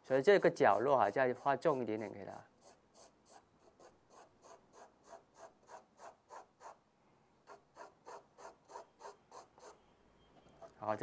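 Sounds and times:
pencil scratching on paper: 0:00.1 - 0:06.8.

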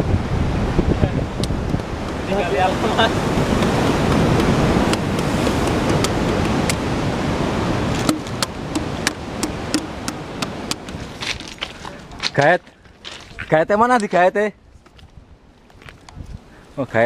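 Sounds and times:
wind on microphone: 0:00.0 - 0:12.3, 0:14.6 - 0:16.7
surf washing on rocks: 0:00.0 - 0:14.5
sharp clicks and taps: 0:08.0 - 0:11.5.

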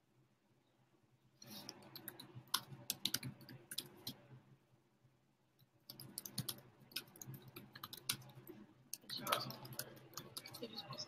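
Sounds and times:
keyboard typing: 0:01.5 - 0:04.2, 0:05.8 - 0:11.0.

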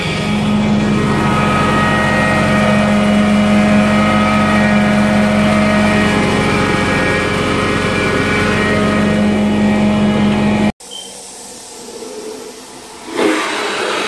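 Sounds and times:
carpet cleaning machine humming: 0:00.0 - 0:10.7.

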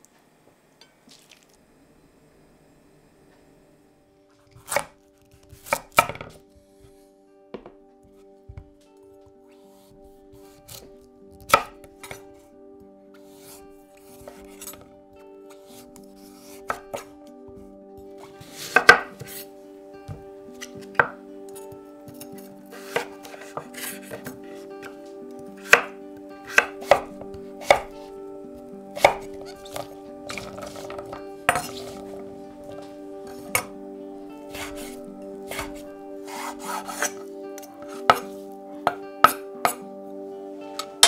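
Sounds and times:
quiet background music: 0:00.0 - 0:41.0
knife chopping on wooden board: 0:05.5 - 0:06.4, 0:18.4 - 0:19.3, 0:22.8 - 0:24.4, 0:25.6 - 0:28.0, 0:29.0 - 0:32.2, 0:34.5 - 0:37.2, 0:38.1 - 0:38.3.

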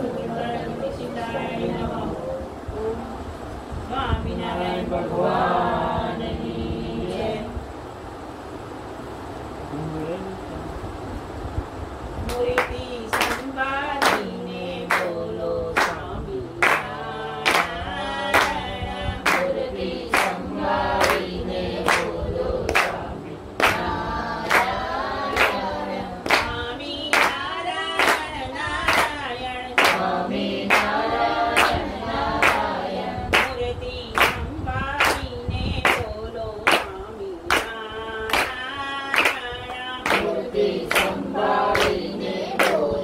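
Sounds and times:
group singing a prayer: 0:00.0 - 0:07.7, 0:12.3 - 0:43.0
hands clapping a steady beat: 0:12.3 - 0:14.3, 0:14.9 - 0:15.2, 0:15.8 - 0:18.6, 0:19.2 - 0:29.2, 0:29.8 - 0:33.6, 0:34.2 - 0:36.1, 0:36.7 - 0:42.9.

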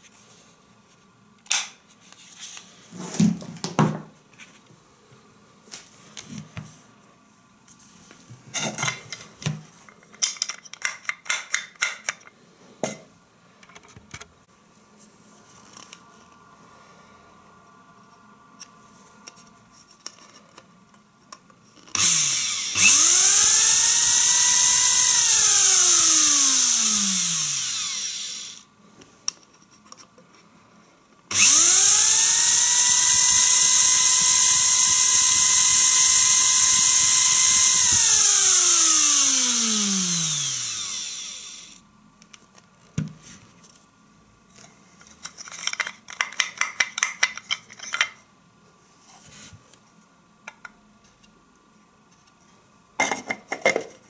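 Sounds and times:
coffee grinder motor whine: 0:22.0 - 0:28.6, 0:31.3 - 0:41.8.

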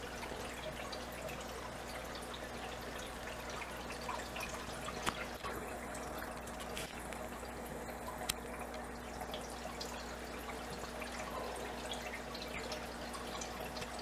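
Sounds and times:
faint steady hum: 0:00.0 - 0:14.0
water trickling and dripping: 0:00.0 - 0:14.0.

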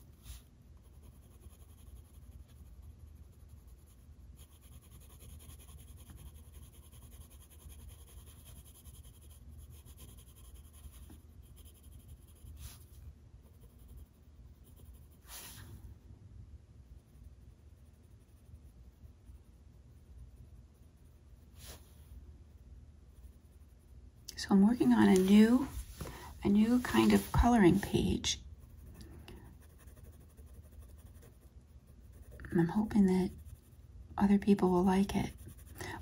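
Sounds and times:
pencil scratching on paper: 0:00.0 - 0:15.7, 0:24.8 - 0:28.0, 0:28.6 - 0:33.8, 0:34.4 - 0:36.0.

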